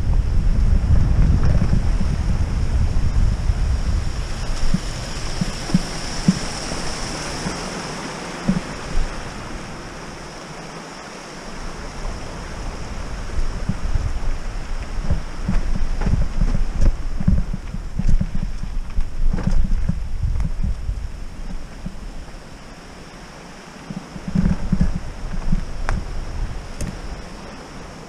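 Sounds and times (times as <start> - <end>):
wind buffeting microphone: 0.0 - 10.8, 11.4 - 28.0
bike knocking over bumps: 15.0 - 20.8.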